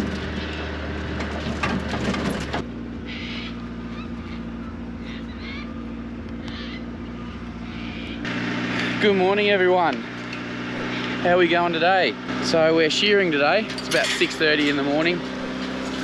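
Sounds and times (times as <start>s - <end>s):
clicks and rattles: 0.0s - 2.6s, 13.6s - 16.0s
engine running inside cab: 0.0s - 16.0s
birds chirping: 2.7s - 16.0s.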